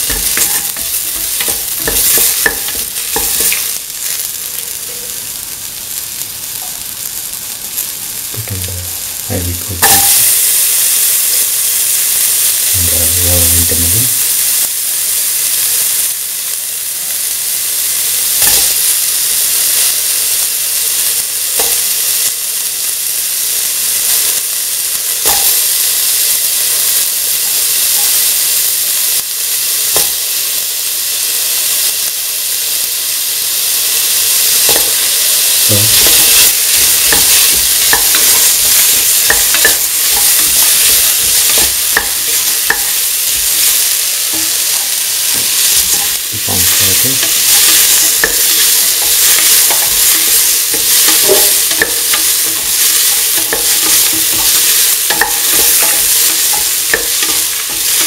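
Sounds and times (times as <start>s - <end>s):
vegetables sizzling in oil: 0.0s - 58.0s.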